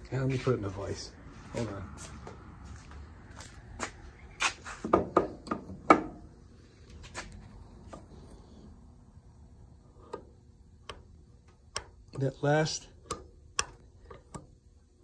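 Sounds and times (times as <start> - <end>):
metal knocks and clunks: 4.8 - 6.3.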